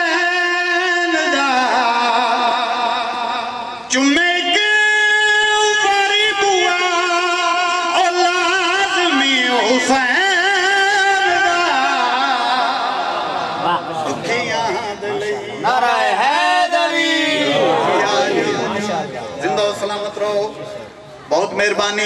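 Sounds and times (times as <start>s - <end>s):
man singing into a microphone: 0.0s - 12.9s.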